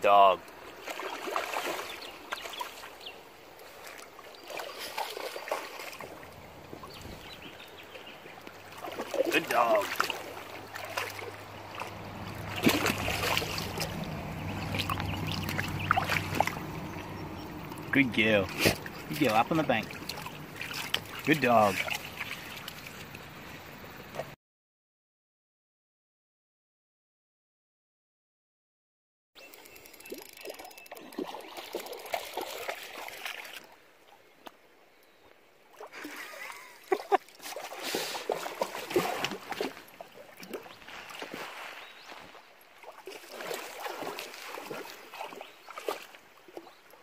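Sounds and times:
river water splashing and gurgling: 0:00.0 - 0:24.4, 0:29.4 - 0:47.0
loud splash: 0:08.8 - 0:16.6, 0:37.4 - 0:39.8, 0:43.0 - 0:46.1.

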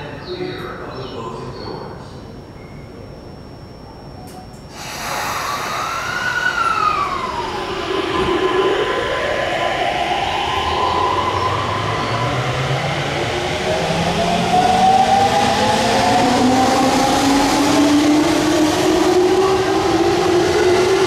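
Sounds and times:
electric train inverter whine: 0:00.0 - 0:21.0
steady tone: 0:03.2 - 0:19.4.

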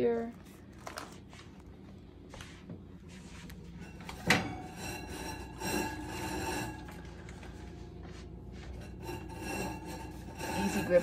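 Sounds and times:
metallic scraping with ringing: 0:03.6 - 0:11.0
oven door clunk: 0:04.1 - 0:04.7.

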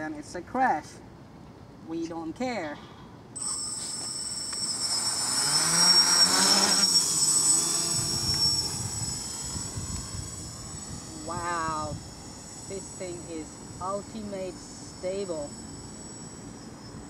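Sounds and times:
steady high whine: 0:03.2 - 0:17.0
quadcopter motors and propellers: 0:03.4 - 0:17.0.

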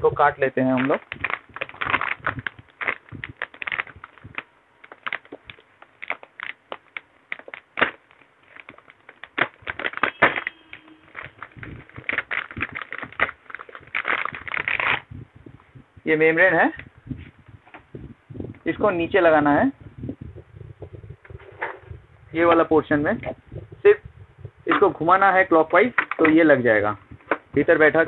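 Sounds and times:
plastic wrapping crinkling: 0:00.6 - 0:15.2.

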